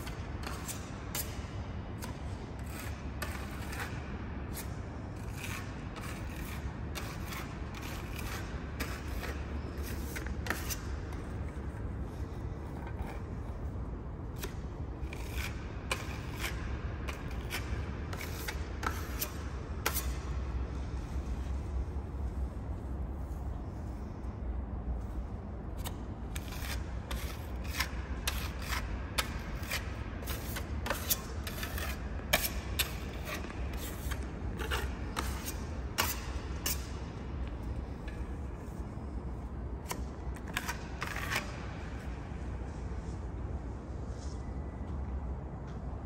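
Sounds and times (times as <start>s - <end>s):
scraping on concrete floor: 0.0s - 24.2s, 25.8s - 44.6s
steady low rumble: 19.5s - 27.2s.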